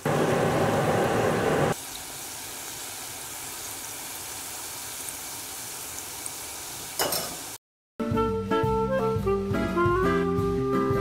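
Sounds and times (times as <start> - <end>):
dough sizzling in hot oil: 0.1 - 7.6.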